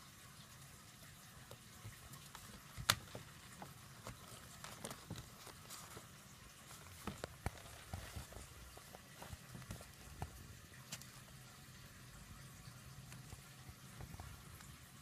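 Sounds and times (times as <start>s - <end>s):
kitten pawing at paper bag: 2.3s - 11.1s
paper bag crinkling: 2.5s - 10.4s.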